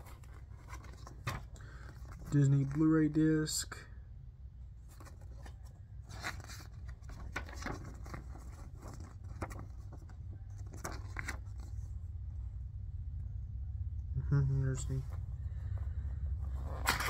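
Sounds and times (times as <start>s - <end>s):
glossy paper rustling: 0.0s - 3.0s, 4.8s - 12.0s
low steady hum: 0.0s - 17.0s.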